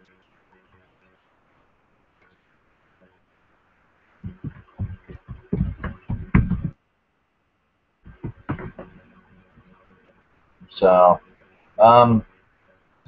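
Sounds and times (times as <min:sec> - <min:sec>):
muffled thumps and knocks: 0:04.2 - 0:06.8, 0:08.1 - 0:09.0.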